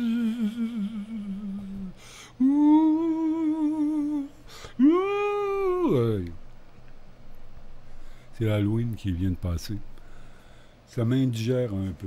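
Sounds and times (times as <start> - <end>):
person humming held notes: 0.0 - 6.4.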